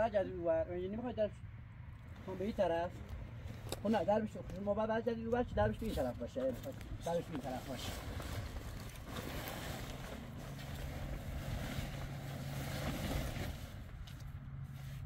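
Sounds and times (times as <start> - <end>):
wind buffeting microphone: 5.2 - 14.1
tent fabric rustling: 5.7 - 15.0.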